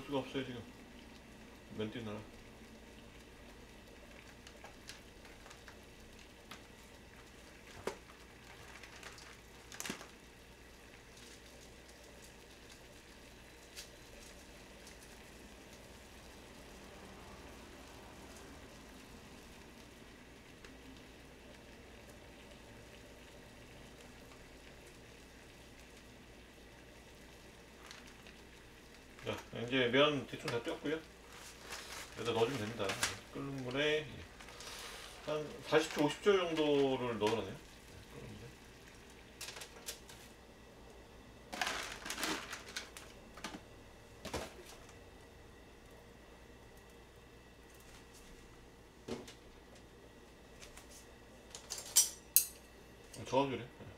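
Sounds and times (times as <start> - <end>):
pot of water boiling: 0.0 - 53.9
noodles clattering into saucepan: 41.6 - 43.6.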